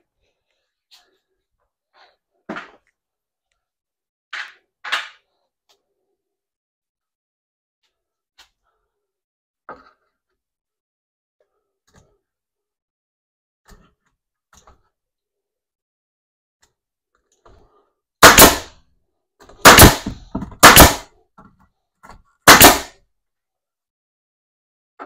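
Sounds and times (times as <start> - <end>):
sharp bangs on wooden frame: 18.2 - 18.7, 19.6 - 21.1, 22.5 - 22.9.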